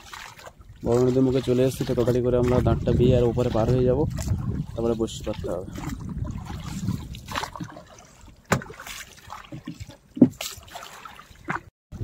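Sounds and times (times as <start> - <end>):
oars rowing: 0.0 - 11.7
water splashing and trickling: 0.0 - 12.0.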